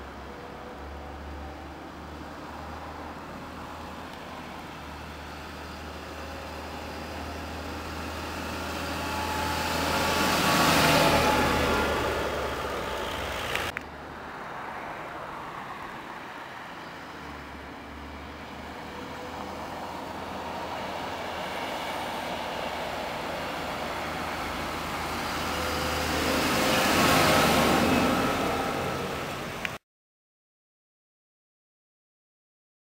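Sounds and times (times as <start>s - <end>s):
tractor diesel engine rumble: 2.5s - 13.8s.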